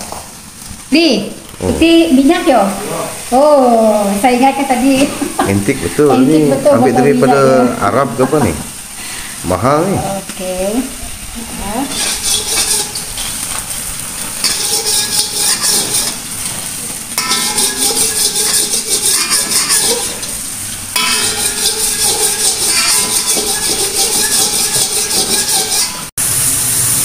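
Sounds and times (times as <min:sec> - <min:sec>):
hot oil sizzling in a wok: 0:00.0 - 0:27.0
metal spatula scraping a pan: 0:11.8 - 0:26.1.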